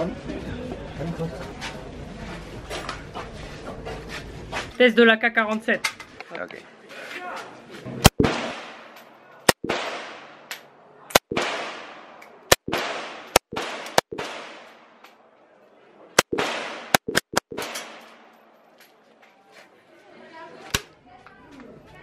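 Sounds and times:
rifle gunshots with echo: 8.1s - 10.5s, 11.1s - 15.0s, 16.2s - 18.3s.

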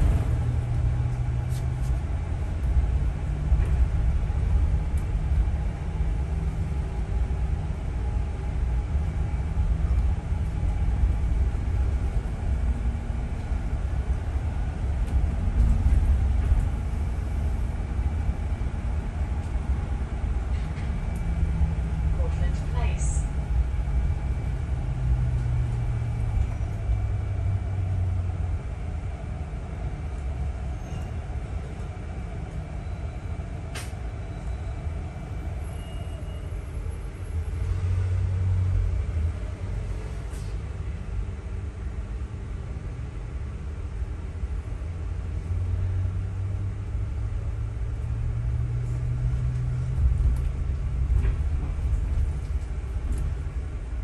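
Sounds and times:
bus engine and road rumble: 0.0s - 54.0s.

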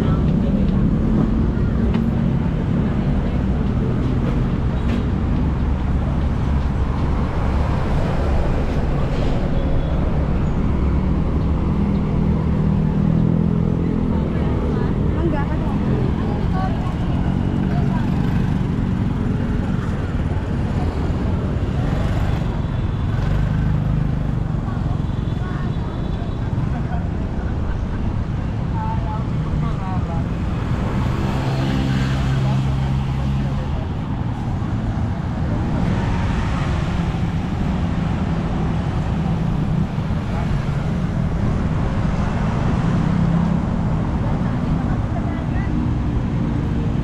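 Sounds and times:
road traffic noise: 0.0s - 47.0s.

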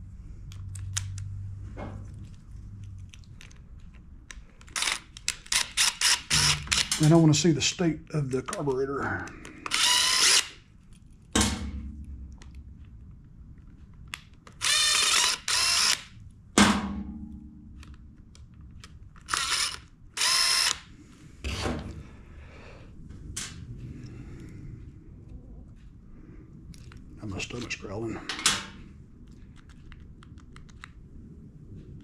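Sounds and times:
cordless drill whining: 9.7s - 10.6s, 14.6s - 16.0s, 19.3s - 20.9s.

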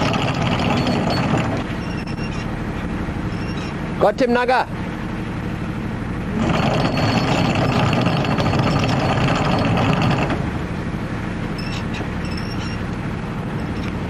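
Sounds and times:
anchor chain rattling through windlass: 0.0s - 2.6s, 6.4s - 10.5s, 11.5s - 14.0s
boat engine humming: 0.0s - 14.0s.

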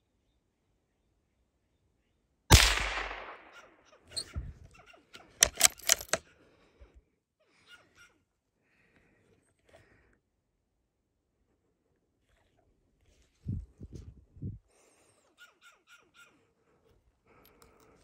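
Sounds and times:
gunshot echoing: 2.5s - 3.6s.

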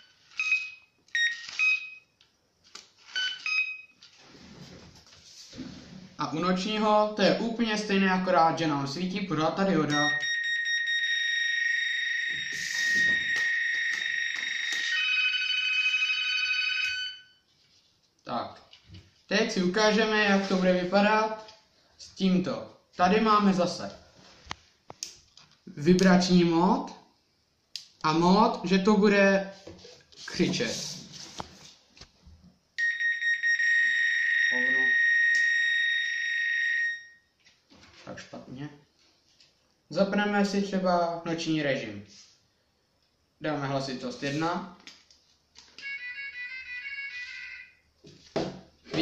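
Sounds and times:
electronic bite alarm tone: 9.9s - 15.4s, 32.8s - 37.2s.

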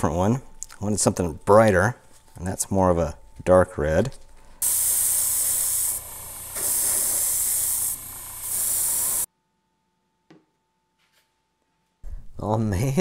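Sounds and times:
airbrush spraying hiss: 4.6s - 9.3s.

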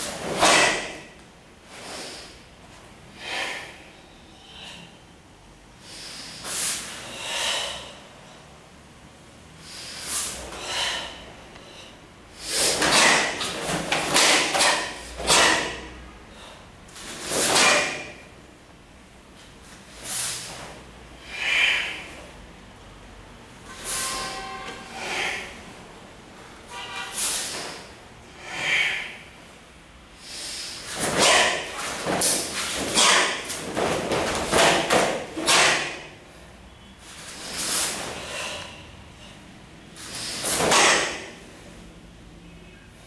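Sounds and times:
sharp hissing exhalations: 5.8s - 8.0s, 9.6s - 11.2s, 20.0s - 22.2s, 30.2s - 31.0s, 40.0s - 40.6s.

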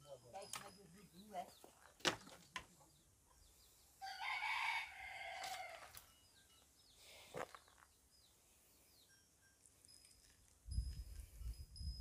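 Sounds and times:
rooster crowing: 4.0s - 6.0s.

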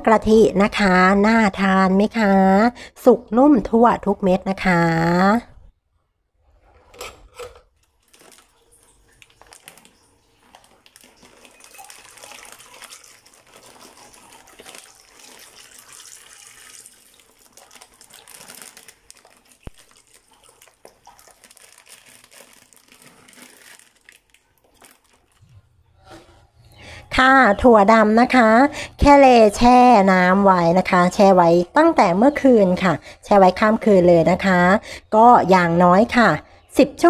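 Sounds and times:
plastic bag crinkling: 7.8s - 25.7s
water splashing and trickling: 7.9s - 25.6s.

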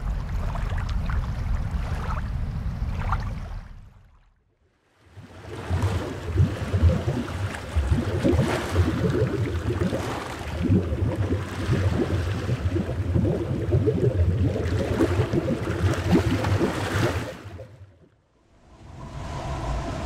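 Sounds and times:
underwater ocean waves: 4.8s - 20.0s.

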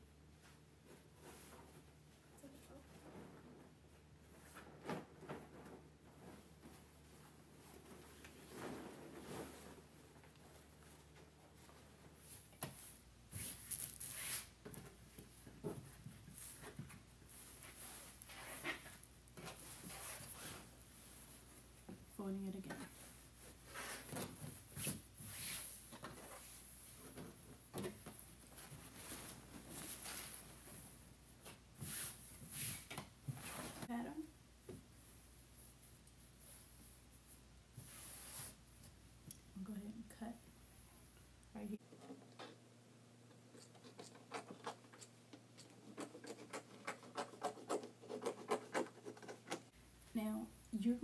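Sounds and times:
fabric rustling and rubbing: 0.3s - 14.6s, 15.2s - 21.9s, 22.9s - 34.1s, 35.0s - 38.8s.

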